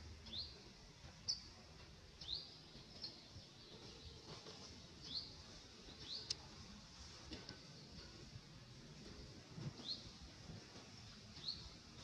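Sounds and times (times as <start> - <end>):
outdoor background hiss: 0.0 - 12.0
bird chirping: 0.2 - 0.6, 1.2 - 1.5, 2.2 - 4.2, 5.0 - 6.4, 11.4 - 11.8.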